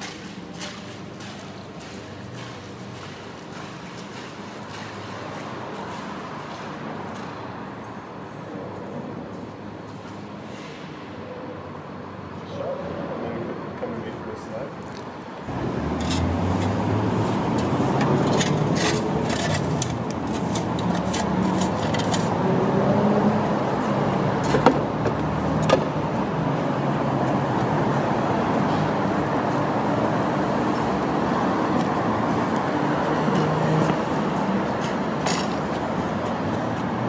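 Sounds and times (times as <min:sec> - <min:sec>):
city traffic: 0:00.0 - 0:37.0.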